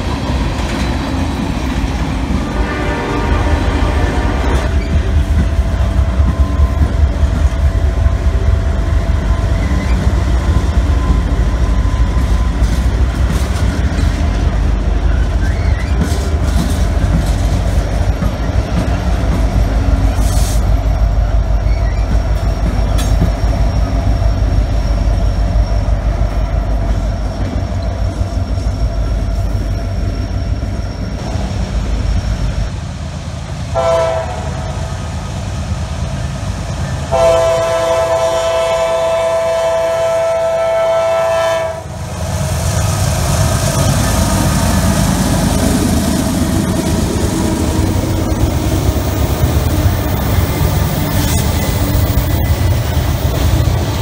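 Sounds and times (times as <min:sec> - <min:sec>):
train rumbling past: 0:00.0 - 0:54.0
high wheel squeal: 0:15.0 - 0:16.3, 0:18.3 - 0:31.3.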